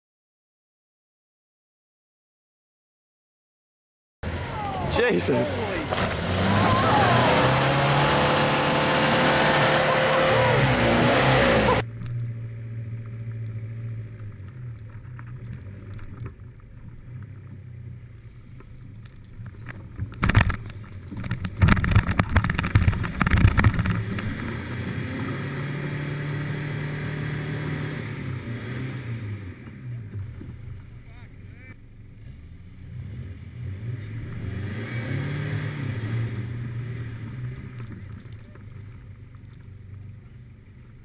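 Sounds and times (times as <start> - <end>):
vehicle engine running: 4.2 - 41.0
sharp knocks and clatter: 19.4 - 24.3.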